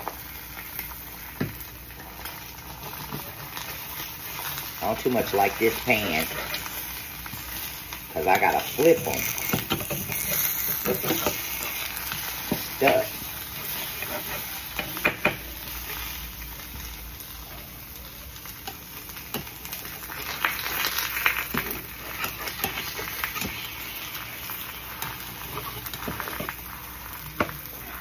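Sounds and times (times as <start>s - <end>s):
eggs sizzling in oil: 0.0s - 28.0s
spatula scraping and tapping pan: 9.2s - 15.4s, 21.4s - 23.7s.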